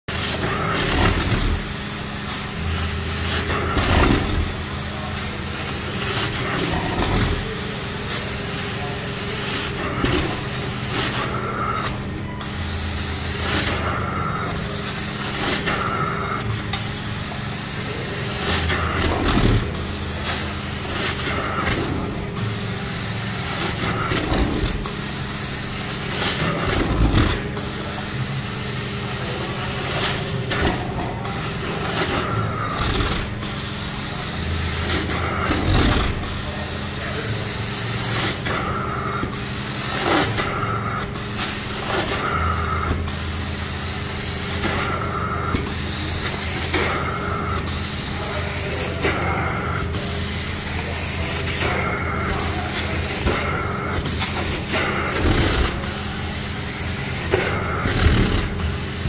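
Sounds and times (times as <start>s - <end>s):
extractor machine hum: 0.2s - 43.4s, 44.0s - 59.0s.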